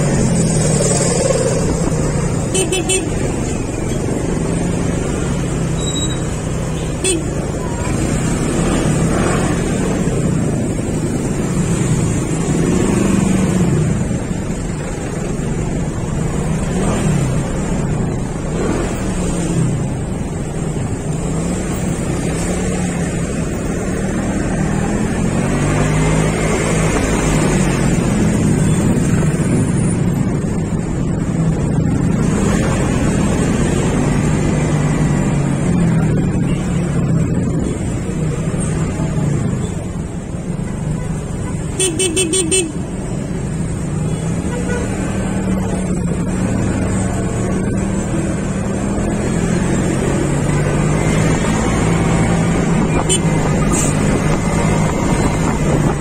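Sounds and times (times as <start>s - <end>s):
motorcycle engine revving: 4.0s - 14.3s
wind noise on microphone: 51.7s - 56.0s.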